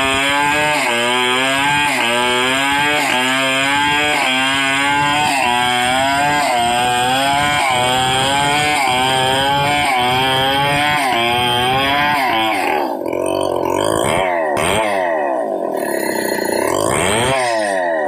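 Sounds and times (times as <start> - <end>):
chainsaw cutting log: 0.0 - 18.0.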